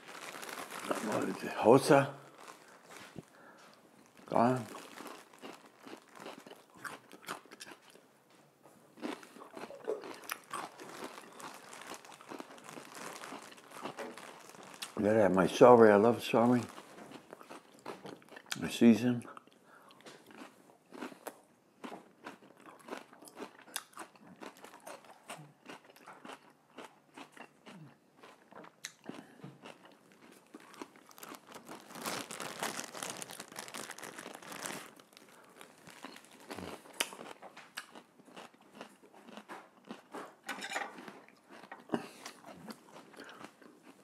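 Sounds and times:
plastic bag crinkling: 0.0s - 7.2s, 9.6s - 17.8s, 30.0s - 37.5s
crunchy chewing of celery: 0.0s - 8.0s, 9.0s - 15.4s, 16.3s - 18.6s, 19.4s - 44.0s.

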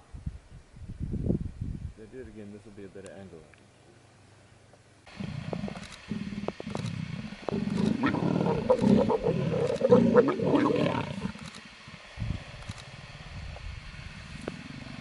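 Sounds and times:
leopards growling: 5.1s - 12.0s.

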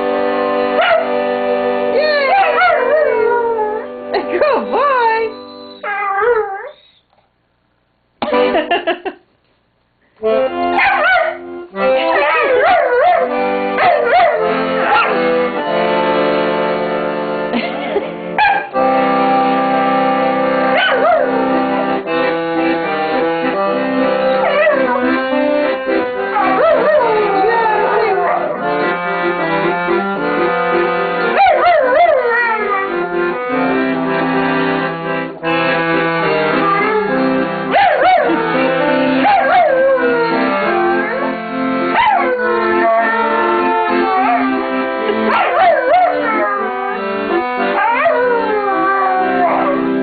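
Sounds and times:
accordion chords: 0.0s - 6.0s, 7.9s - 9.4s, 10.0s - 50.0s
dog howling: 2.2s - 3.9s, 12.1s - 15.2s, 20.8s - 21.4s, 24.4s - 25.1s, 26.3s - 28.6s, 31.4s - 33.0s, 39.2s - 41.3s, 41.9s - 44.7s, 45.3s - 47.0s, 47.7s - 49.9s.

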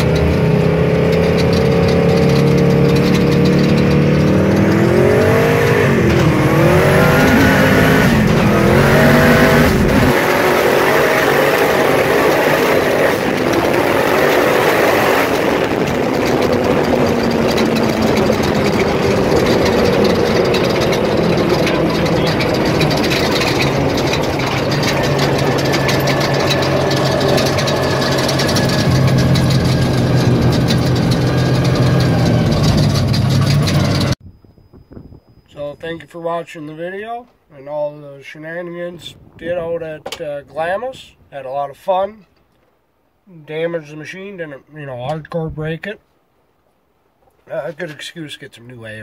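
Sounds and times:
cab rattling: 0.0s - 34.2s
vehicle engine running hard: 0.0s - 34.2s
wind rush: 4.4s - 35.5s, 39.0s - 39.8s.

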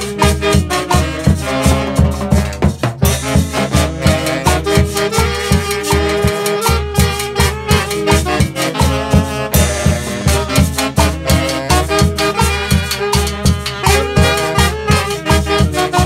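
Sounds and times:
latin dance band music: 0.0s - 16.0s.

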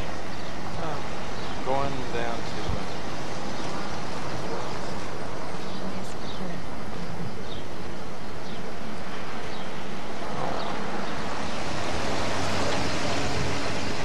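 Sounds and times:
car road and engine noise: 0.0s - 14.0s.

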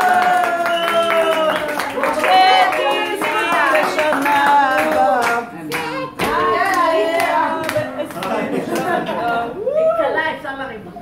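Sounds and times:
people clapping in time: 0.0s - 9.1s
group of people singing: 1.7s - 9.6s.

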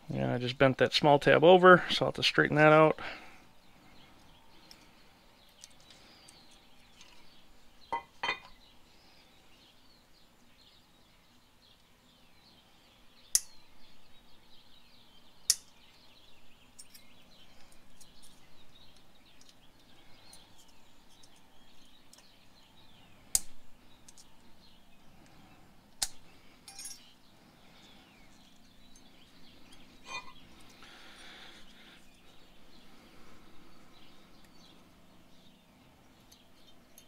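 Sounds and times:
sharp metallic clicks: 13.3s - 13.6s
metal clips clinking: 16.8s - 18.4s, 26.0s - 27.1s.

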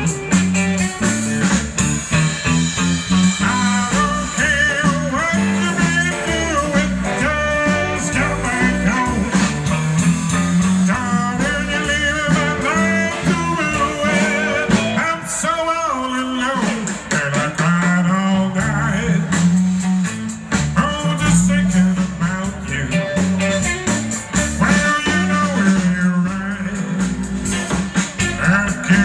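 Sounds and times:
electric guitar lead: 0.0s - 15.4s, 18.9s - 29.0s
bass: 0.0s - 29.0s
drums: 0.0s - 29.0s.

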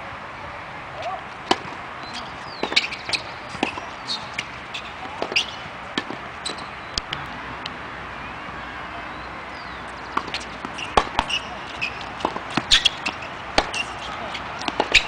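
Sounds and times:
tennis balls bouncing on hard court: 1.0s - 7.2s, 9.9s - 15.0s
tennis balls struck with racquets: 1.0s - 7.7s, 9.8s - 15.0s.

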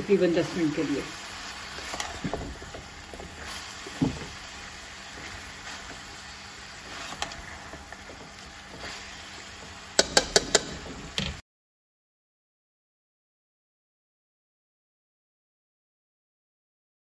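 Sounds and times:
vegetables sizzling in a pan: 0.0s - 11.4s
spatula knocking against pan: 10.0s - 10.8s.

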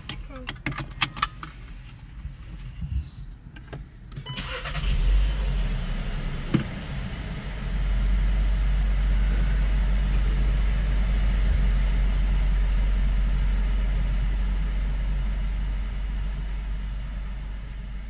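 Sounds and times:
car interior engine and road rumble: 0.0s - 18.0s.

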